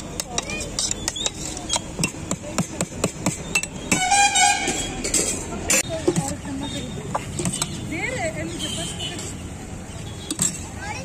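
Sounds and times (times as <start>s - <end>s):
spoon scraping a steel bowl: 0.7s - 2.1s
horn honking: 3.9s - 5.1s.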